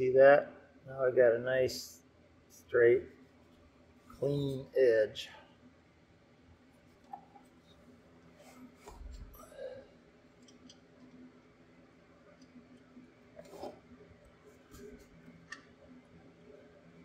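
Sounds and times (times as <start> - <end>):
faint clicks and handling noise: 10.2 - 11.6, 12.2 - 16.0.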